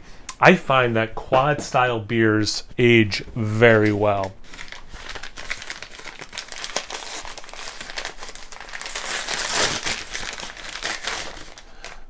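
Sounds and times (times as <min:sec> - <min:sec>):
packing material crinkling: 0:03.8 - 0:12.0.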